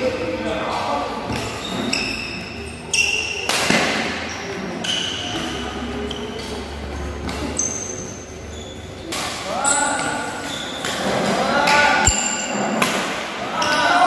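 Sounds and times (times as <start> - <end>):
shoes squeaking on court floor: 0.5 - 11.8.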